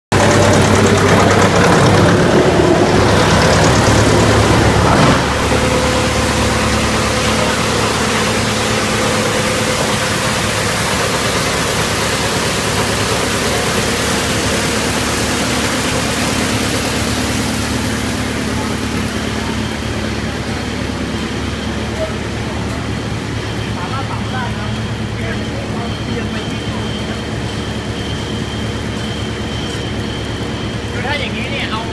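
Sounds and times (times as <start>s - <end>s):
wood chipper chewing log: 0.1s - 20.4s.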